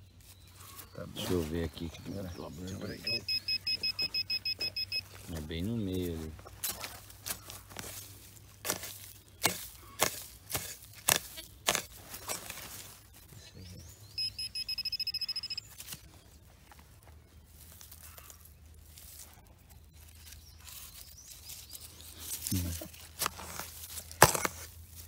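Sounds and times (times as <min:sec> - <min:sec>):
metal detector high beeps: 0:02.9 - 0:05.1, 0:14.2 - 0:15.8
digging tool chopping soil: 0:08.6 - 0:12.7, 0:23.2 - 0:25.0.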